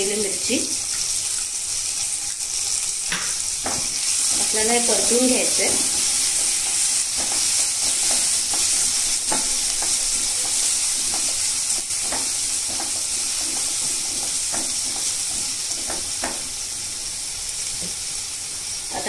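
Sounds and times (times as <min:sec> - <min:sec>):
vegetables sizzling in hot oil: 0:00.0 - 0:19.0
spatula scraping and tapping pan: 0:03.1 - 0:16.6.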